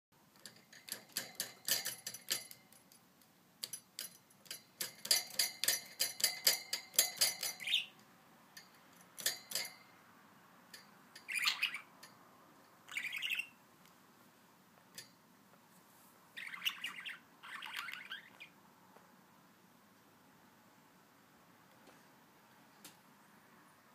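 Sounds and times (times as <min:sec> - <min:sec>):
budgerigar chirping: 0:11.2 - 0:12.0, 0:12.9 - 0:13.6, 0:16.4 - 0:18.6.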